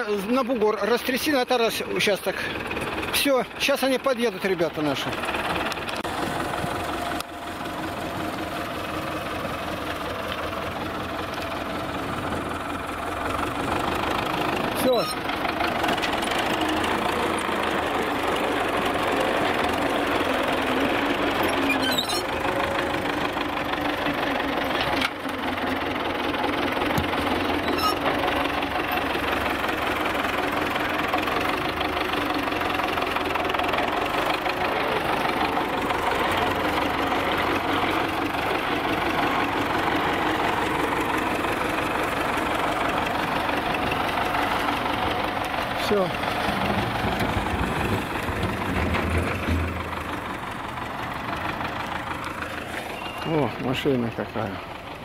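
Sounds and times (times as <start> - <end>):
tractor diesel engine running: 0.0 - 55.0
loader bucket pushing sand: 12.2 - 31.6, 32.3 - 53.8.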